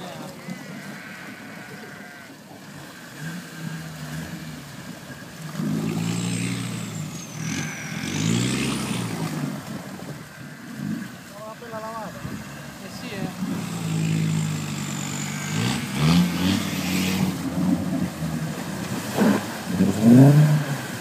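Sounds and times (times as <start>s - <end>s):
engine revving under load: 0.0s - 11.3s, 11.9s - 21.0s
water churning and splashing: 0.0s - 21.0s.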